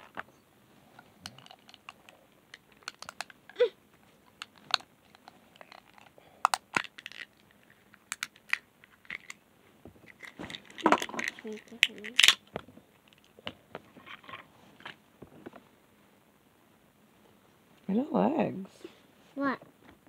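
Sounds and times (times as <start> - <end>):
plastic toys clicking: 1.2 - 3.6, 4.2 - 9.4, 10.1 - 12.4.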